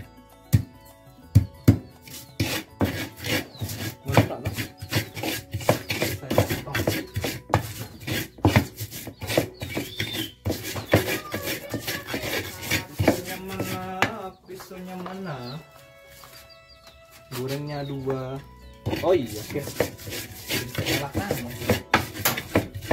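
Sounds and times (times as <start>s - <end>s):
pestle grinding in a mortar: 1.4s - 14.2s, 18.7s - 22.9s.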